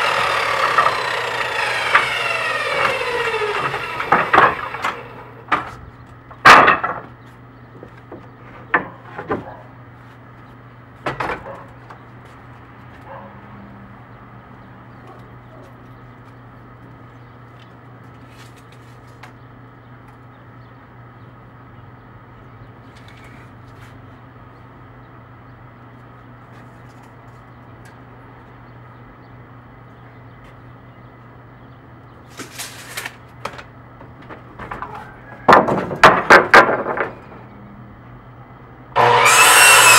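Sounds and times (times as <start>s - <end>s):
wooden boards knocking: 1.9s - 7.2s, 34.0s - 37.3s.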